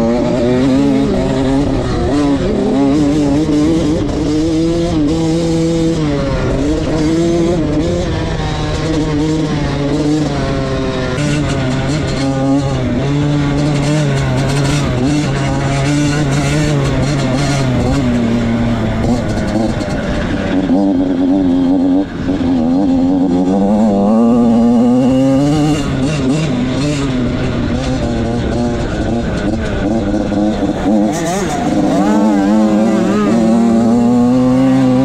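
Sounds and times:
motocross bike engine revving: 0.0 - 35.0.

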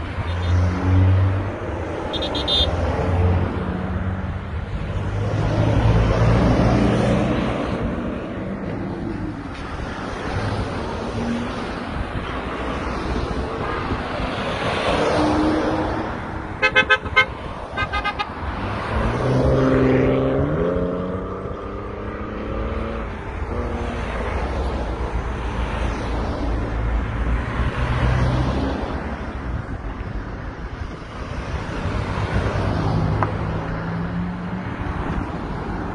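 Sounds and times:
car horn short beeps: 2.1 - 2.7, 16.6 - 18.3
vehicle engine speeding up: 18.5 - 24.0.

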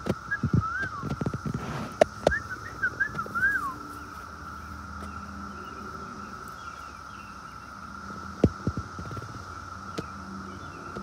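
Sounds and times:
cicada chorus drone: 0.0 - 11.0
bird chirps: 2.0 - 11.0.

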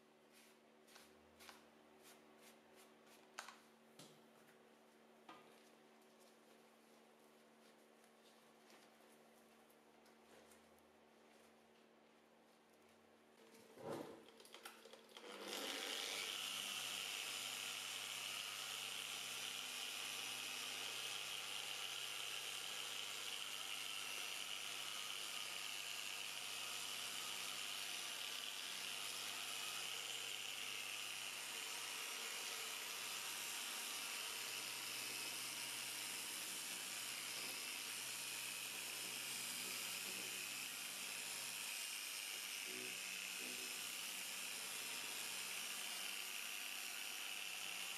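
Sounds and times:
electric polisher motor running: 15.2 - 47.9.

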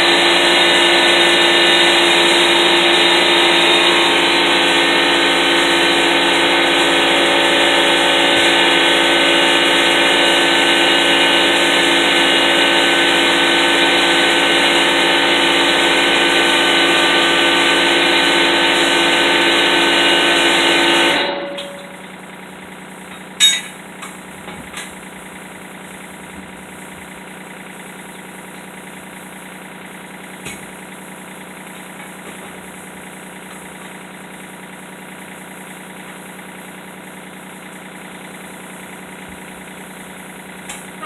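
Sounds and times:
machine droning: 0.0 - 41.0
sharp metal clank: 21.3 - 22.0, 23.1 - 23.8.

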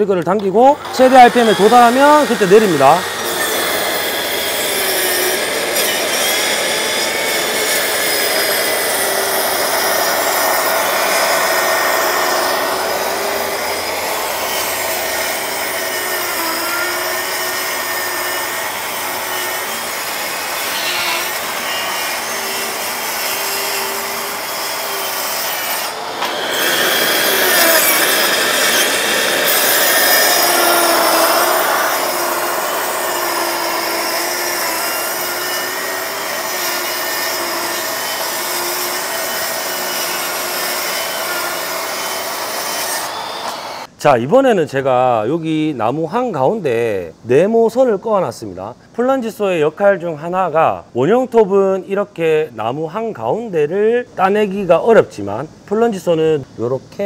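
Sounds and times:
saw motor whine: 0.7 - 43.9
saw blade rasping through wood: 0.8 - 43.9.

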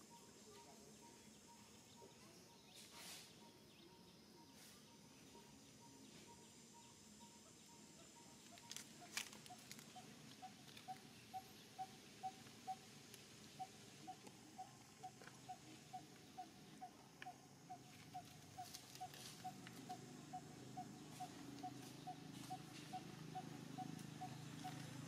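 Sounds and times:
rustle: 2.7 - 3.5, 8.3 - 16.3, 17.2 - 25.0.

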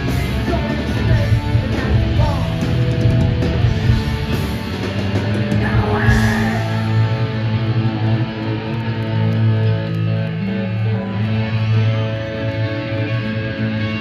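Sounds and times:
bass guitar: 0.0 - 14.0
distorted electric guitar: 0.0 - 14.0.

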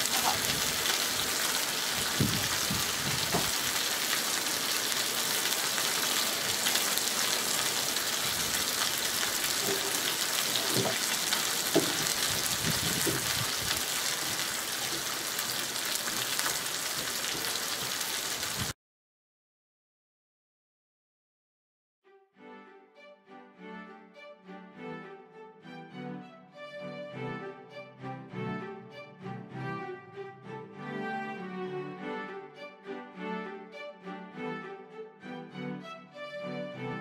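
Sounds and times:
chicken sizzling on a griddle: 0.0 - 18.8.

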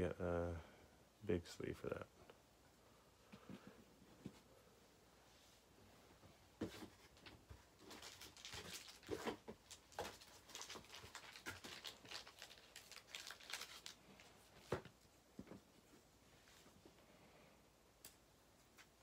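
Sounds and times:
plastic sleeves rustling and crinkling: 6.6 - 16.8.

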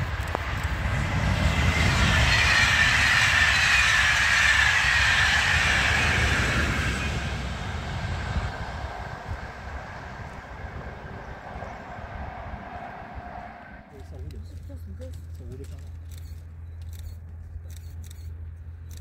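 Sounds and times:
high whine sliding down in pitch: 0.0 - 13.9
passenger train passing: 0.0 - 17.2.

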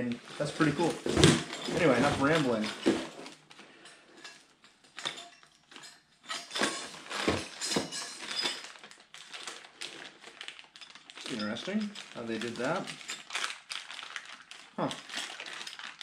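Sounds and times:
plastic bag crinkling: 0.0 - 5.0, 6.6 - 16.0
small metal parts clinking: 1.2 - 9.6, 10.4 - 13.8.

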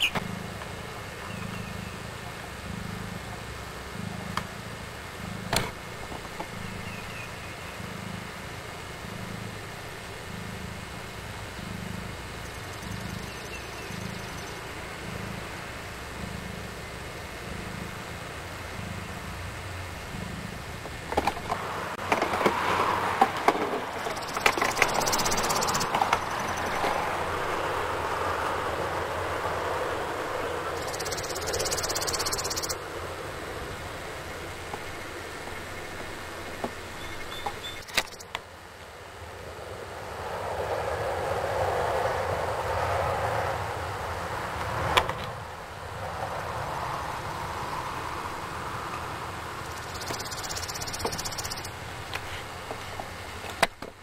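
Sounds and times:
cat purring: 0.2 - 21.1.

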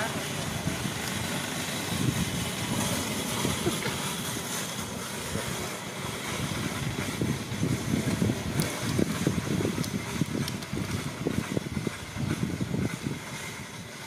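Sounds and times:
outdoor background rumble: 0.0 - 14.0.

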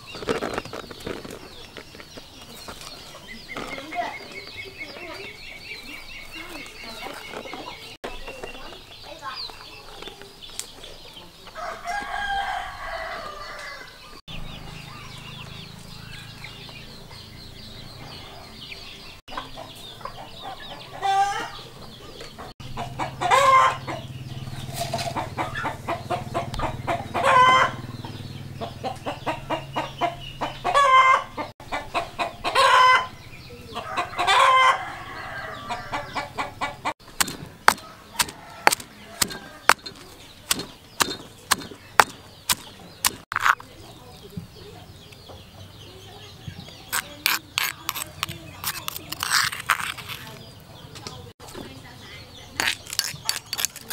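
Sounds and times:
chickens clucking: 0.0 - 53.9
pestle pounding in stone mortar: 37.0 - 43.6, 46.9 - 50.2, 52.6 - 53.9.

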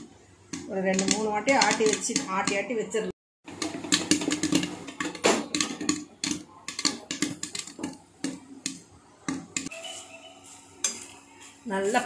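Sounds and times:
popcorn rattling in metal pot: 0.5 - 9.7.

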